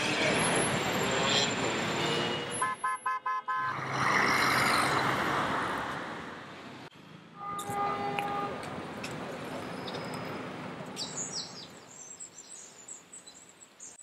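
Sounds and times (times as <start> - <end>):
passing traffic rush: 0.0 - 13.2
car horn toots: 2.1 - 3.8, 7.4 - 8.6
car passing: 3.7 - 11.3.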